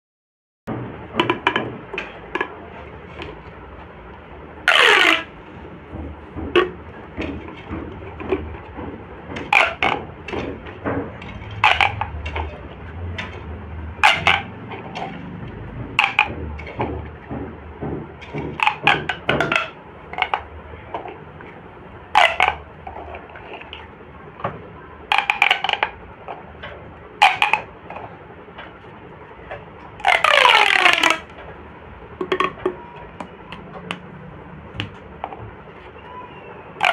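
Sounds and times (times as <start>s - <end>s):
ribbed tube sweeps: 4.7s - 5.7s
plastic pop tubes popping: 4.7s - 13.4s, 14.0s - 28.1s, 29.5s - 31.5s, 32.2s - 34.1s.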